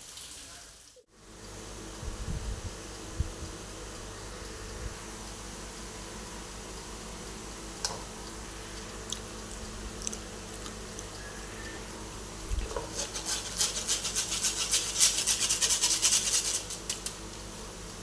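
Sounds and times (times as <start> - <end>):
flour rubbed through wire sieve: 12.9 - 17.0.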